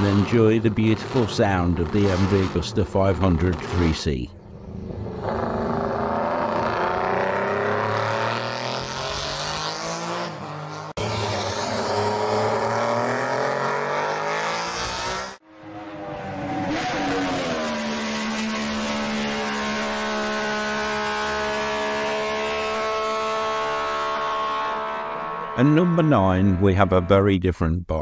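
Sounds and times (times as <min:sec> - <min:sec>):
racing motorcycle engine revving: 0:00.0 - 0:27.1.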